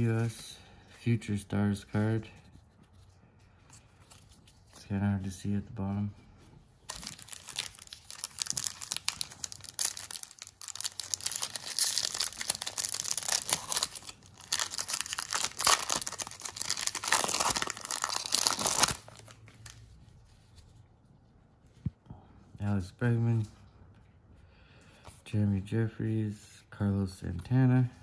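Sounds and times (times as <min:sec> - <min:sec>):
foil wrapper tearing and crinkling: 0:06.9 - 0:19.8.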